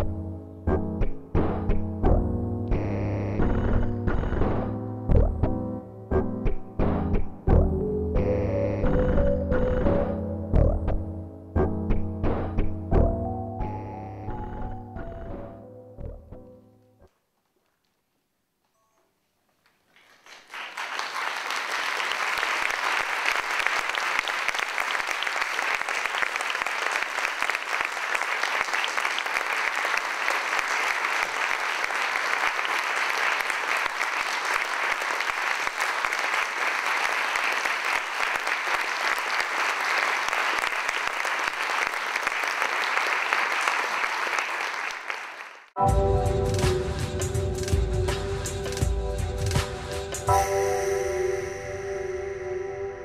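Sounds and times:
audience clapping: 19.6s - 45.8s.

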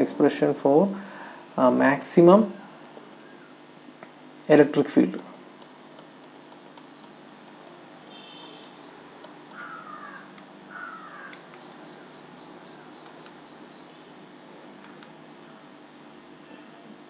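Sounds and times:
birds chirping faintly: 0.0s - 17.0s
steady low hum: 0.0s - 17.0s
sharp clicks: 5.6s - 7.8s, 8.6s - 10.6s, 11.2s - 11.9s, 12.9s - 13.4s, 14.8s - 15.2s
sweeping bird calls: 5.9s - 15.0s, 16.1s - 17.0s.

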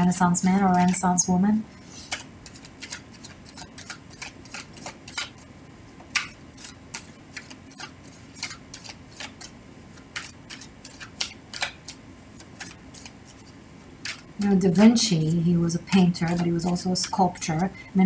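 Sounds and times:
cards being shuffled: 1.8s - 14.3s, 16.2s - 17.7s.

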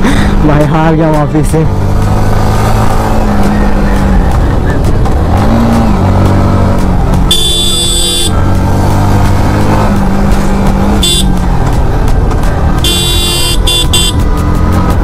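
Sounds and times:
motorcycle engine drone: 0.0s - 15.0s
vehicle horn: 7.3s - 8.4s, 10.9s - 11.4s, 12.8s - 14.3s.

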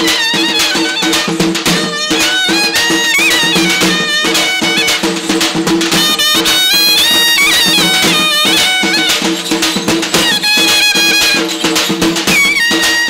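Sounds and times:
drums beating: 0.0s - 13.0s
reedy wind instrument melody: 0.0s - 13.0s.

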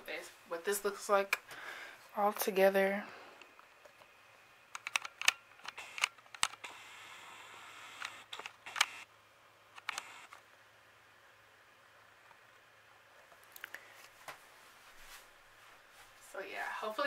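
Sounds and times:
camera handling clicks and taps: 4.8s - 6.6s
rustling: 13.2s - 17.0s.

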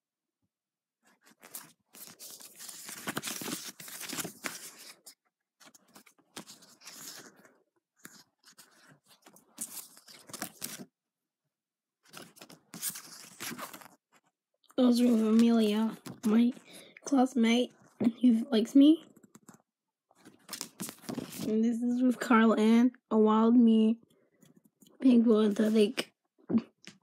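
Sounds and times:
paper photos rustling and scraping: 1.0s - 10.9s, 12.0s - 16.8s, 20.2s - 21.5s, 25.4s - 26.0s.

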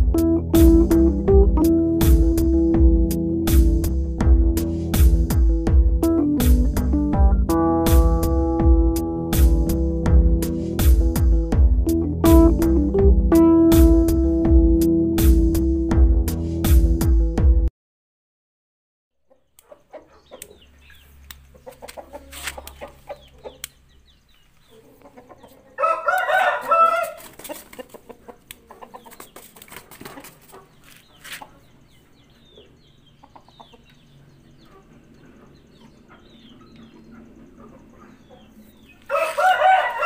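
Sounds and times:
rooster crowing: 25.7s - 27.3s, 39.0s - 40.0s.

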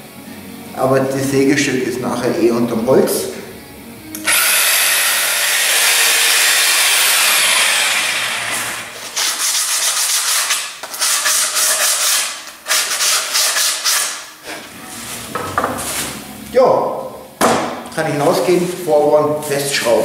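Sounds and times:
jigsaw cutting wood: 4.2s - 9.0s
sandpaper rubbing wood: 8.0s - 16.2s.

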